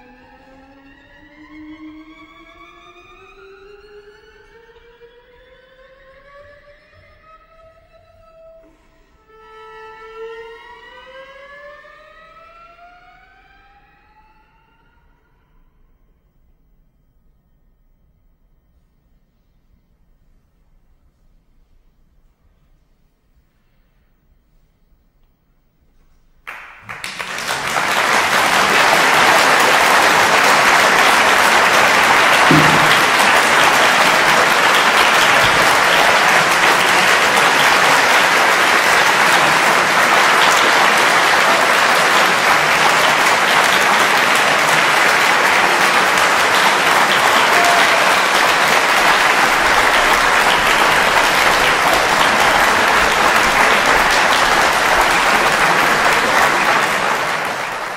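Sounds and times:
audience applauding: 26.5 - 57.9.

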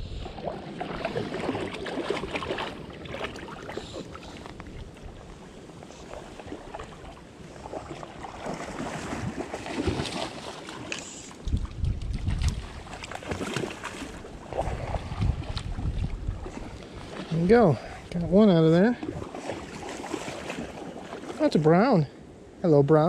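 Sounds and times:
creek water rippling and splashing: 0.0 - 22.6
wind buffeting microphone: 11.4 - 20.8.

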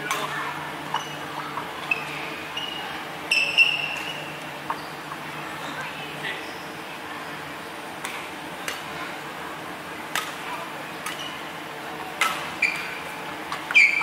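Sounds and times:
rackets striking shuttlecock: 8.0 - 8.9, 10.1 - 10.4, 11.0 - 11.4, 12.2 - 14.0.

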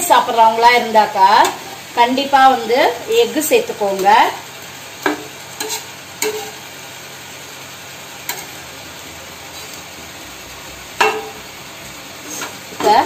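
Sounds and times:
low frying hiss: 0.0 - 13.0
metal blade clacking on griddle: 5.0 - 6.5.

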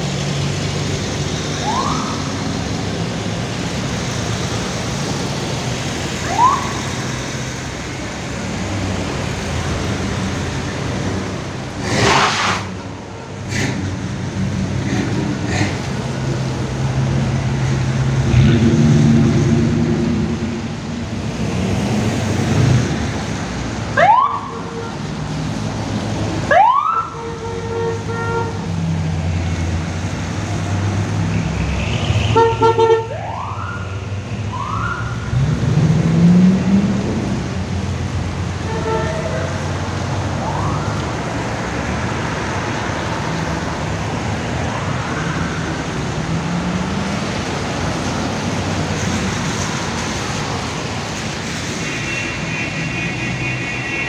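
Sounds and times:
siren whooping: 1.5 - 2.4, 6.2 - 6.9, 24.0 - 24.8, 26.5 - 27.2, 33.0 - 35.4, 40.2 - 41.2
car horns tooting: 27.0 - 28.7, 31.3 - 33.2, 38.6 - 39.6.

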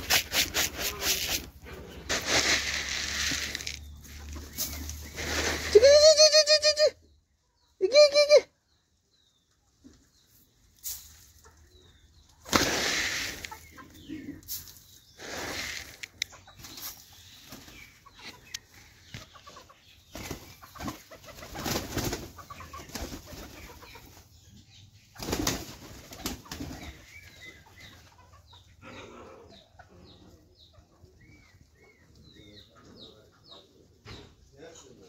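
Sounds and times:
pigeons' wings flapping: 25.2 - 26.8.

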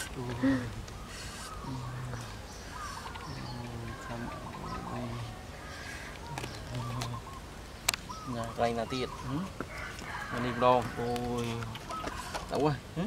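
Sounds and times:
low murmuring human voice: 0.0 - 7.4.

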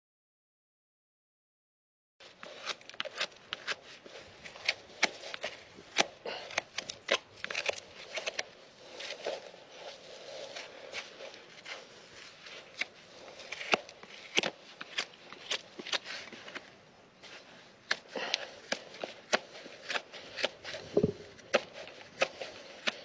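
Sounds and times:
hoof knife scraping hoof: 2.3 - 6.1, 17.9 - 23.0.

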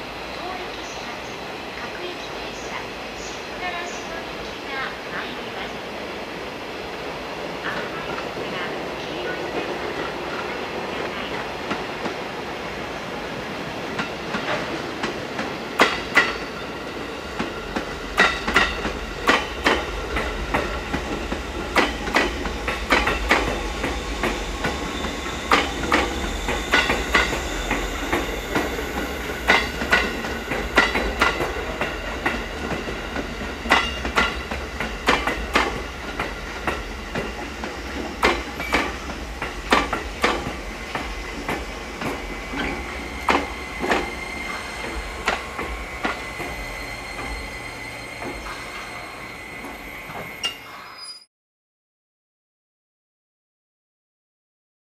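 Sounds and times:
electric train rolling past: 0.0 - 51.2
wheels clicking over rail joints: 29.5 - 46.6.

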